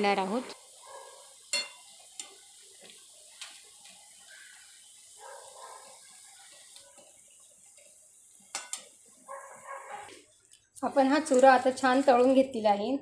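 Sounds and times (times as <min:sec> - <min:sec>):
batter sizzling in hot oil: 0:00.0 - 0:13.0
metal spoon clicking on pan: 0:08.5 - 0:08.9.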